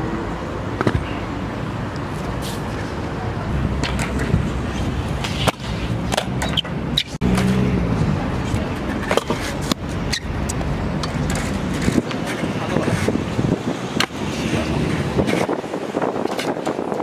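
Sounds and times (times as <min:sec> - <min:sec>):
scooter wheels rolling over concrete: 0:03.8 - 0:17.0
scooter deck clacking on ground: 0:08.7 - 0:13.2.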